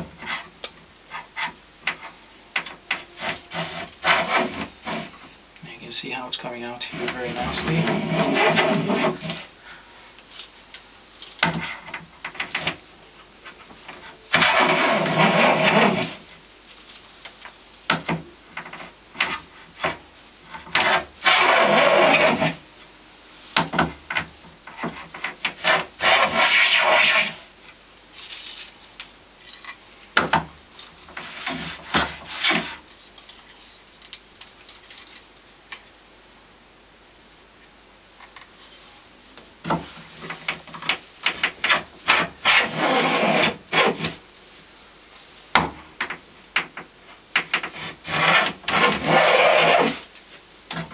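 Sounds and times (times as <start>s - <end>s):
hand plane cutting wood: 3.0s - 5.2s, 6.9s - 9.4s, 14.3s - 16.2s, 20.7s - 22.6s, 24.8s - 27.4s, 41.6s - 44.2s, 47.6s - 50.0s.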